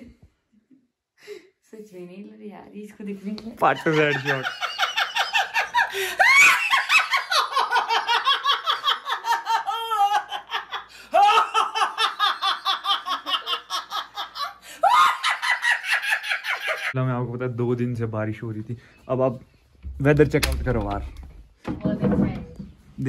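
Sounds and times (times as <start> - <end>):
high-pitched hearty laughter: 3.7 - 17.0.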